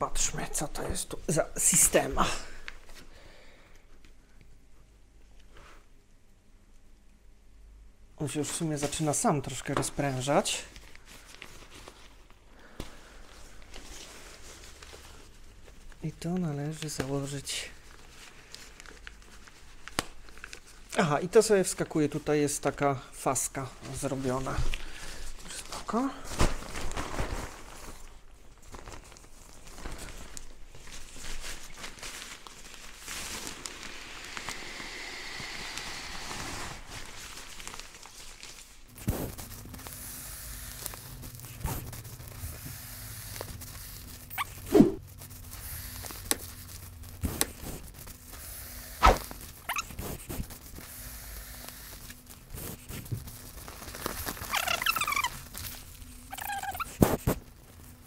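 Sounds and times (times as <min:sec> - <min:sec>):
nylon sack rustling: 0:25.4 - 0:34.8, 0:35.6 - 0:39.9.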